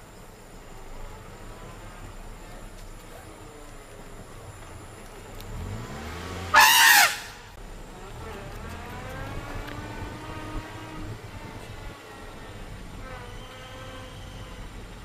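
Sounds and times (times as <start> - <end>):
vehicle engine humming: 0.0 - 15.0
elephant trumpeting: 6.4 - 7.4.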